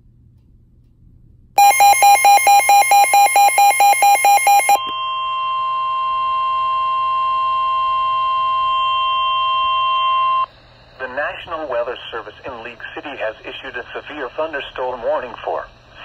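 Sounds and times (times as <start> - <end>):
pulsing alarm beeps: 1.6 - 10.5
long steady warning tone: 1.6 - 16.0.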